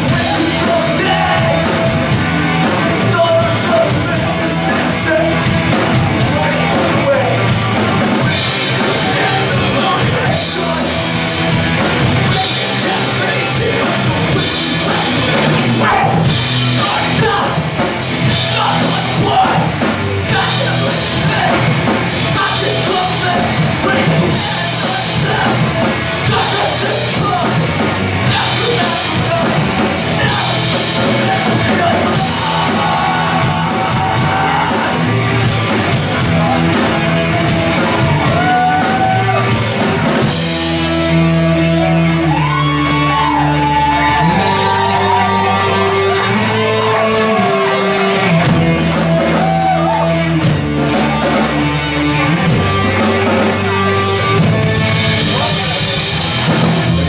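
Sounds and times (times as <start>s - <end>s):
punk rock band playing: 0.0s - 57.0s
shouted vocals: 0.0s - 57.0s.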